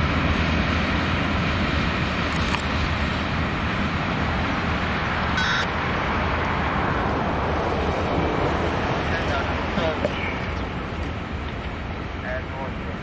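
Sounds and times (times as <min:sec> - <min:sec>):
train rumbling past: 0:00.0 - 0:13.0
short high tone: 0:05.4 - 0:05.7.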